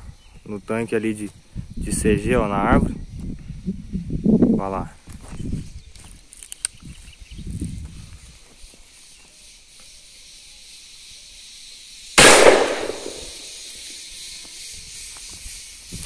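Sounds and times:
shotgun shot: 0:12.2 - 0:13.4.

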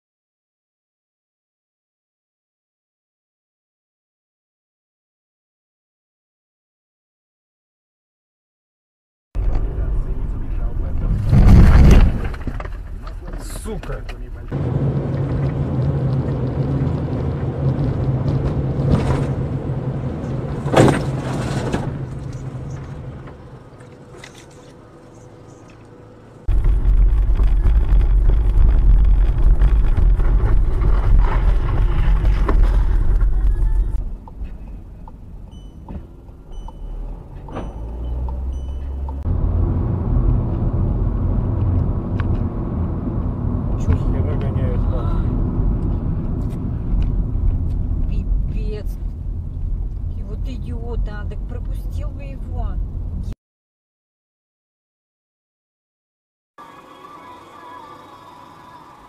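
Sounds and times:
car engine and road rumble: 0:09.4 - 0:53.4.

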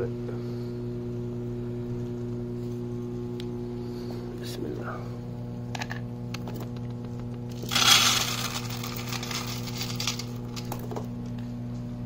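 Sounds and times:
low electrical hum: 0:00.0 - 0:12.0
kibble rattling into plastic bowl: 0:07.5 - 0:11.1.

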